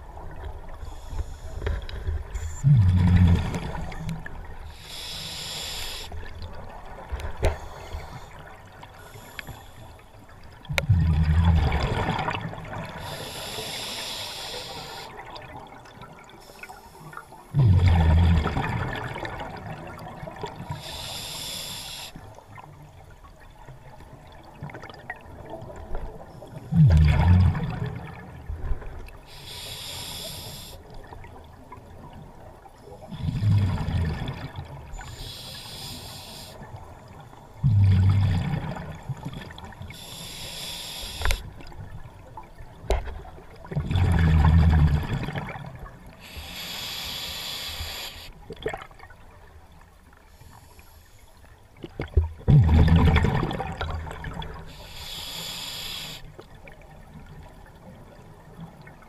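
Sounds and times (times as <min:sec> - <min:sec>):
regulator inhale hiss: 0:00.8 - 0:01.8, 0:04.7 - 0:06.2, 0:07.5 - 0:10.1, 0:13.0 - 0:15.2, 0:20.7 - 0:22.2, 0:29.2 - 0:30.9, 0:35.0 - 0:36.8, 0:39.9 - 0:41.5, 0:46.2 - 0:48.4, 0:50.3 - 0:51.5, 0:54.6 - 0:56.4
bubbling exhale through regulator: 0:52.5 - 0:56.3.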